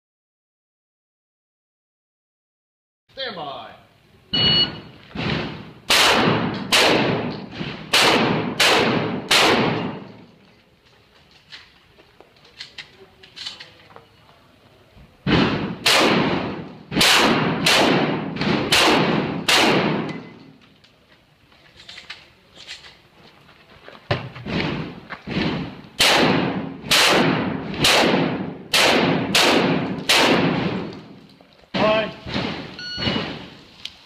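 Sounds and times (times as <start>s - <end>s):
shotgun shots echoing: 5.2s - 10.2s, 15.2s - 20.4s, 24.6s - 31.2s.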